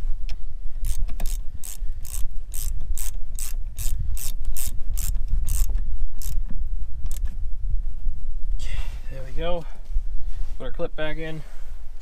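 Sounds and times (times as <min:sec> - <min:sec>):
socket ratchet clicking: 0:00.8 - 0:06.4.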